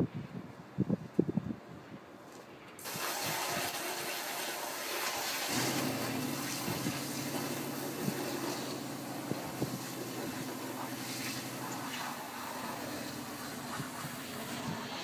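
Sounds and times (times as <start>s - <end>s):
steady rushing hiss: 2.8s - 15.0s
car engine starting and idling: 3.4s - 15.0s.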